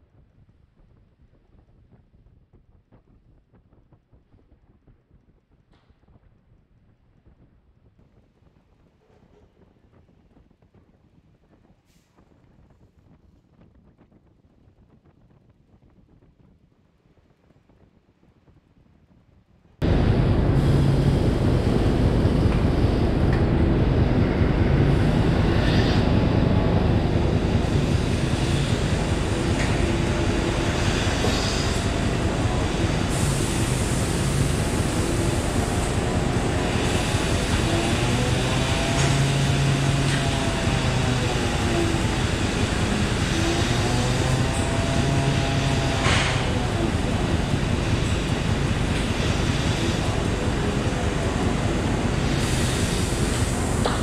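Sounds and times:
milking machine noise: 19.8 - 54.0.

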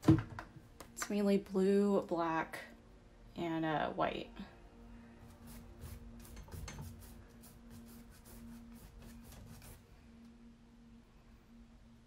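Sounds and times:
faint low hum: 0.0 - 12.0
paintbrush scrubbing: 5.3 - 10.0.

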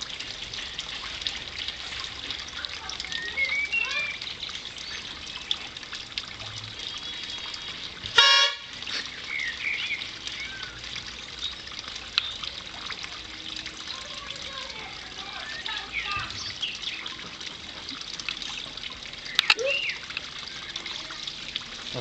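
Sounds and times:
birds chirping faintly: 2.4 - 5.8, 9.0 - 21.4
plastic horn blast: 8.1 - 8.7.

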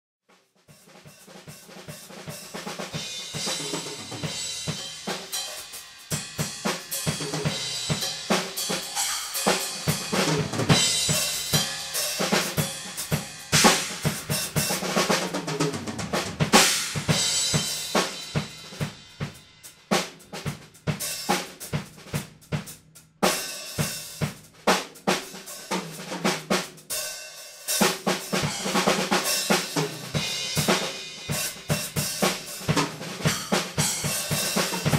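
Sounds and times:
drum kit rolls and fills: 0.3 - 34.9
cymbal crashes: 3.0 - 14.7.

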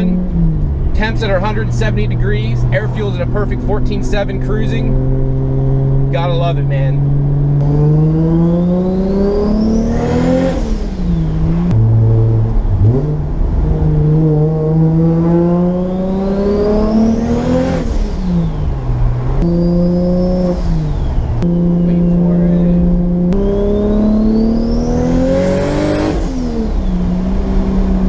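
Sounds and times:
turbocharged engine revving: 0.0 - 28.0
turbo whistle: 19.4 - 22.8, 23.4 - 25.3.

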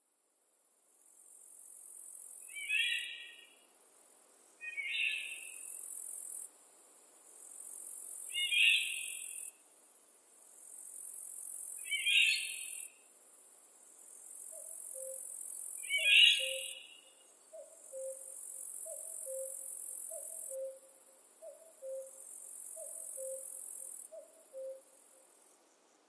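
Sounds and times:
songbird singing: 2.4 - 3.6, 4.6 - 5.8, 8.3 - 9.5, 11.8 - 12.9, 14.5 - 26.0.

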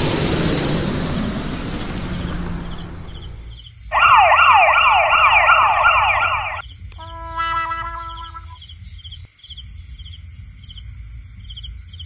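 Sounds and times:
siren-like warble: 0.0 - 8.6.

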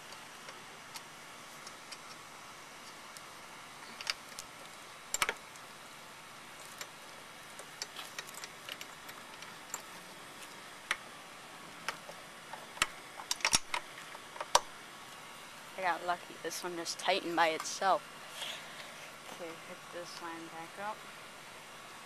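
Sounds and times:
metal clicks of hand tools: 4.0 - 4.5, 5.1 - 5.4, 11.8 - 14.7.

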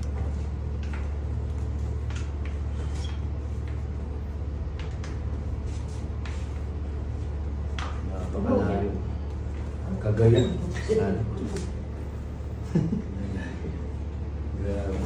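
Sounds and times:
low room hum: 0.0 - 15.0.

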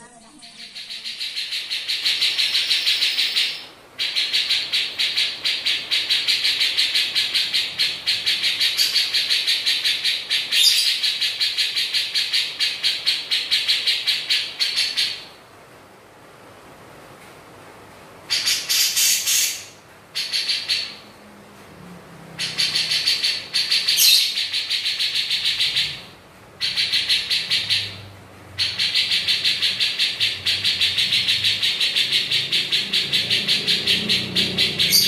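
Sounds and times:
bulbul chattering call: 28.6 - 35.0.

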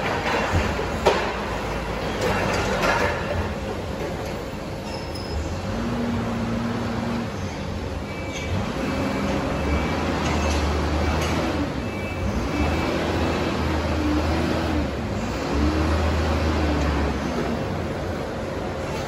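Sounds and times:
forklift engine revving: 5.4 - 19.0.

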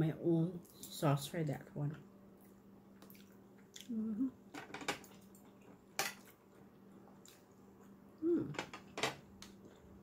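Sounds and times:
person humming mm: 3.8 - 4.4, 8.2 - 8.7.

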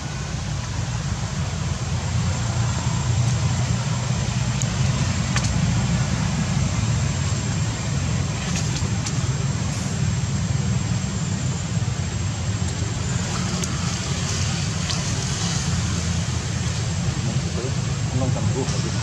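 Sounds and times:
outdoor background rumble: 0.0 - 19.0.

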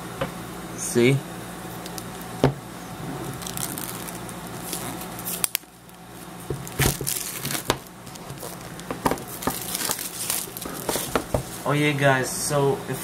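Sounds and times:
faint steady hum: 0.0 - 13.0
paper and cardboard rustling: 6.5 - 11.7.

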